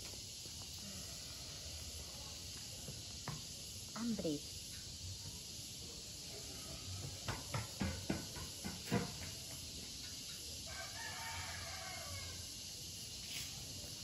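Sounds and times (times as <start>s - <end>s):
rooster crowing: 10.6s - 12.6s.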